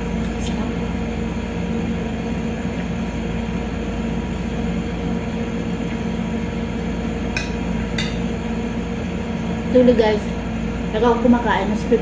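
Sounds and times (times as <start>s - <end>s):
low machine hum: 0.0s - 12.0s.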